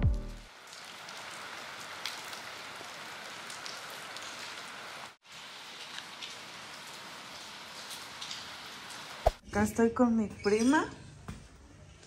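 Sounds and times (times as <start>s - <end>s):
steady rain falling: 0.1s - 9.4s.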